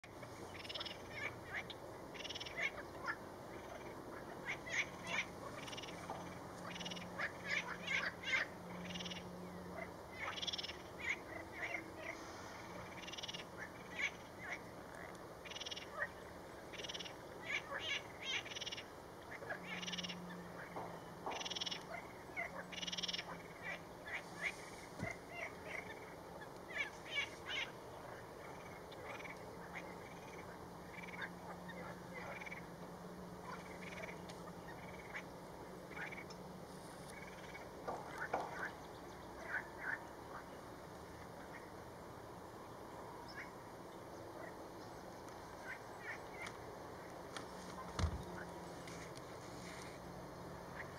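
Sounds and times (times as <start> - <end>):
birds calling: 0.0 - 41.9
frogs croaking: 0.0 - 48.8, 50.0 - 50.9.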